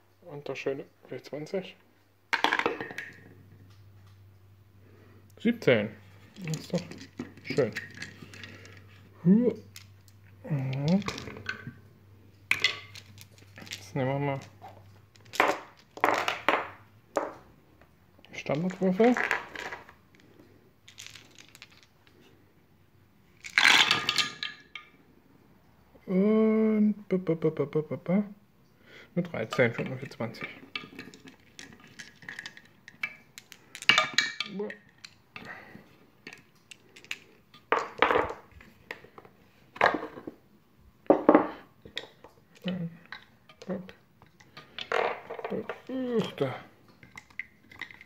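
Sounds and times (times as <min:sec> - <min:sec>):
dice clattering down wooden tower: 0:02.3 - 0:03.3, 0:06.1 - 0:09.0, 0:09.6 - 0:11.7, 0:12.5 - 0:17.4, 0:18.4 - 0:20.3, 0:20.9 - 0:22.2, 0:23.4 - 0:24.9, 0:29.5 - 0:35.6, 0:36.2 - 0:40.4, 0:44.5 - 0:48.0.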